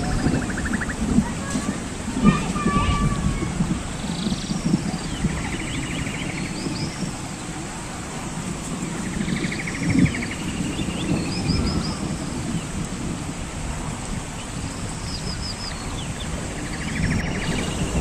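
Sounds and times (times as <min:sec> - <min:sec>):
high bird chirps: 0:15.7 - 0:18.0
low steady rumble: 0:16.4 - 0:18.0.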